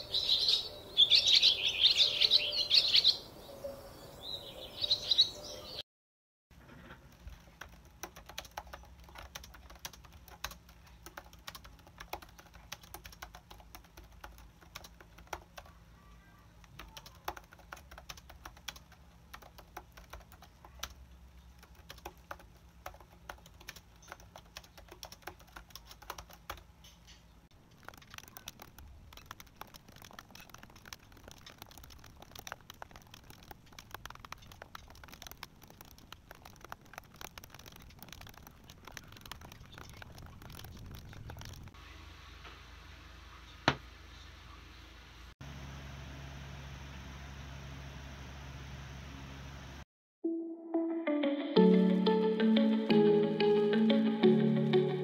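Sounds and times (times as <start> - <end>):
typing on laptop keyboard: 7.1 - 15.8, 16.6 - 26.7, 27.7 - 41.8.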